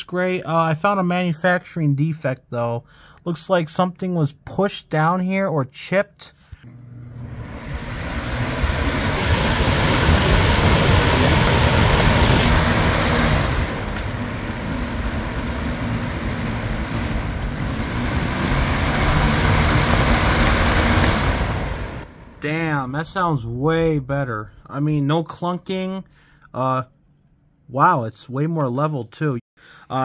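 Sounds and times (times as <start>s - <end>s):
box fan running: 6.7s - 22.6s.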